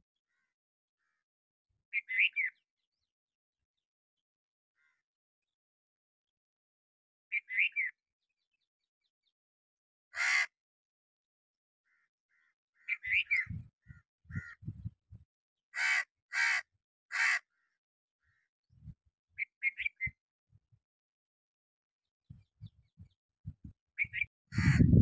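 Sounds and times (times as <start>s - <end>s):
crow cawing: 0.3s - 1.2s, 4.8s - 5.0s, 10.2s - 10.6s, 11.9s - 13.0s, 14.3s - 14.6s, 15.8s - 18.5s, 24.5s - 24.9s.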